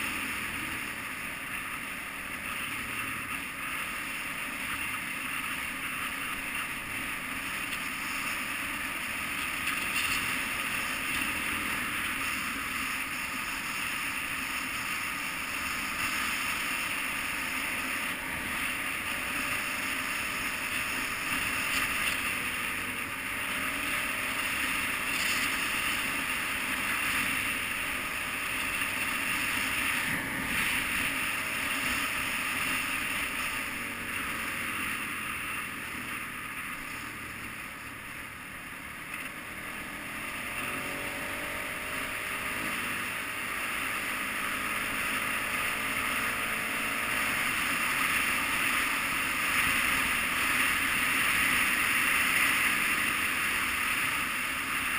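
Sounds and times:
motorcycle engine running: 0.0 - 54.9.

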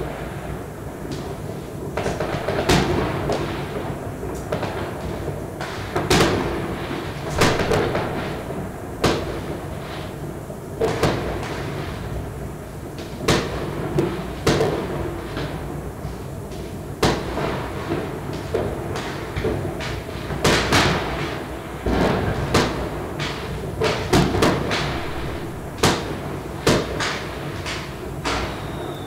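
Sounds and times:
fireworks banging with echo: 0.0 - 29.0.

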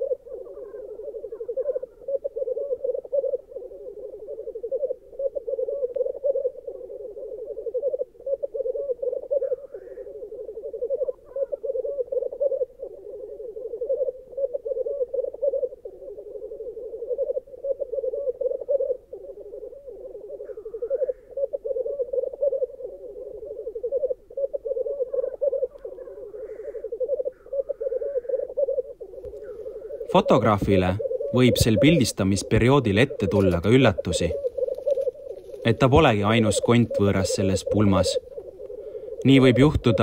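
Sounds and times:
grouse bubbling cooing chorus: 0.0 - 40.0
higher rising bird calls: 0.0 - 40.0.

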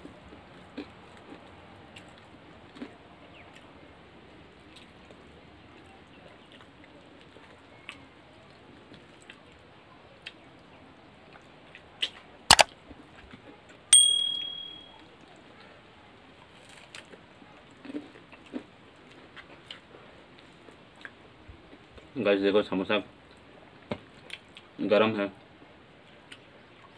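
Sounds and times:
steel tableware ringing: 14.0 - 14.9.

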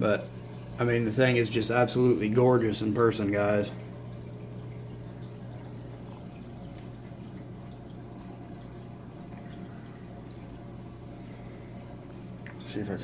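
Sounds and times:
low hum: 0.0 - 13.0
water trickling: 0.0 - 13.0.

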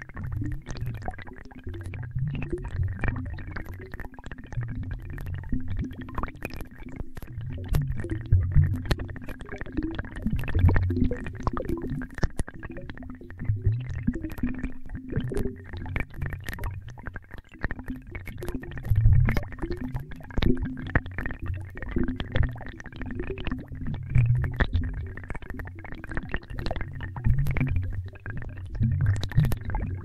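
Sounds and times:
synthesizer watery bubbling: 0.0 - 30.0.

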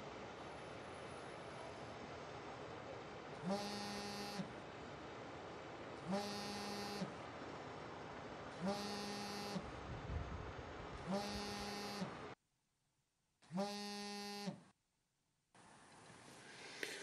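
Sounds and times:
electric buzzer: 3.4 - 4.5, 6.1 - 7.1, 8.6 - 9.6, 11.1 - 12.2, 13.5 - 14.6.

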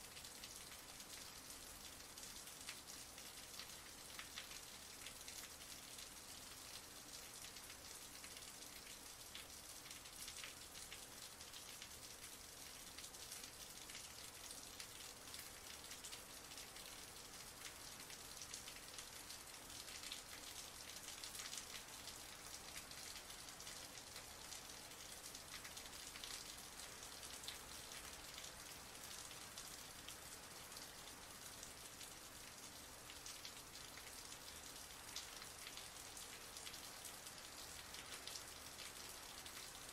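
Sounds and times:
heavy rain falling: 13.0 - 39.9.

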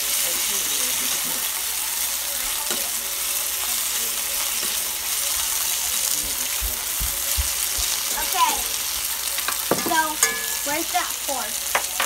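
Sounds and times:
onions sizzling in hot oil: 0.0 - 12.0
fork knocking against pan: 9.5 - 10.6.

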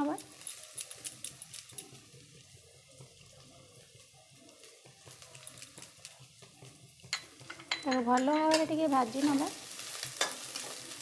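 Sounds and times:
onion sizzling in oil: 0.0 - 11.0
small crackles: 0.1 - 2.0.

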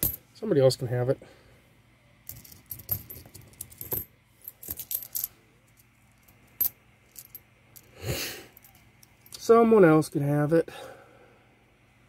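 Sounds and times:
coins clinking: 2.3 - 7.9.

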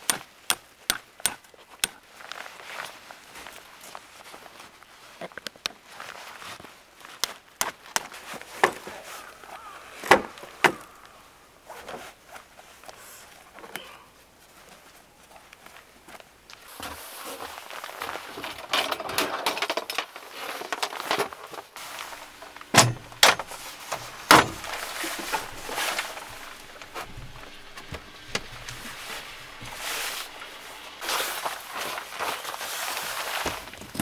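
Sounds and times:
wooden panel rustling and clattering: 18.1 - 32.4.

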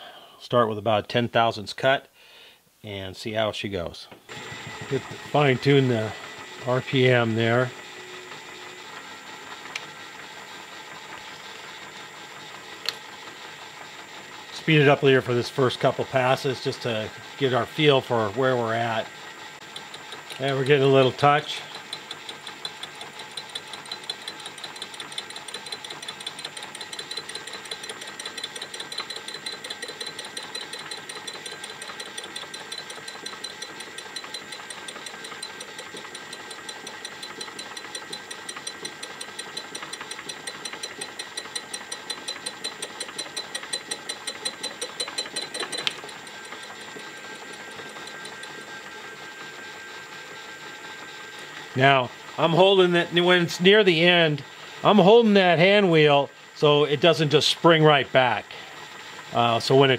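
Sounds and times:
mill running hum: 4.2 - 59.9
boring tool ticking: 19.6 - 48.9.

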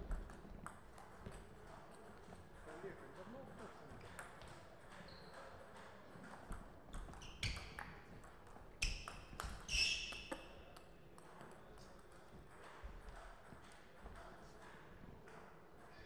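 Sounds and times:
table tennis ball hits: 4.0 - 15.5.

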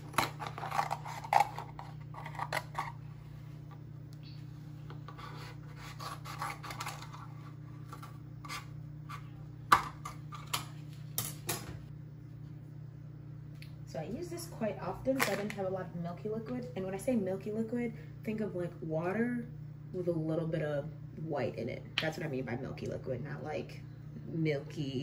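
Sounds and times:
blade scraping paperboard carton: 5.1 - 7.4.

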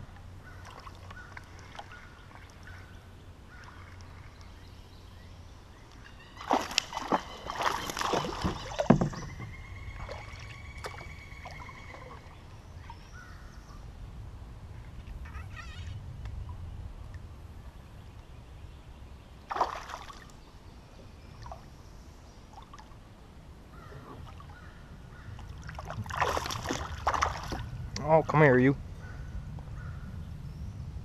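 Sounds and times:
water splashing around kayak: 0.1 - 4.8, 5.8 - 13.3, 19.4 - 20.5, 21.1 - 23.2, 24.0 - 28.0.

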